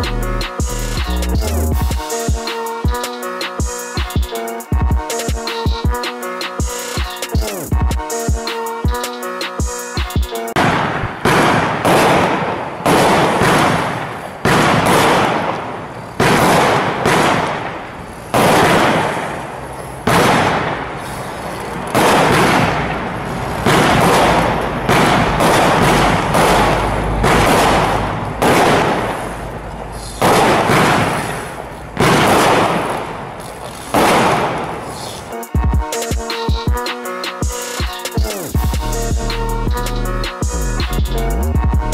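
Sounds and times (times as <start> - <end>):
firework bangs with crackle: 10.5 - 35.8.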